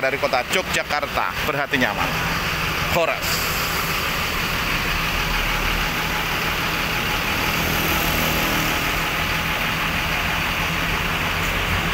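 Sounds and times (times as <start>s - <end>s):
road traffic passing: 0.0s - 11.9s
low engine hum: 1.2s - 11.9s.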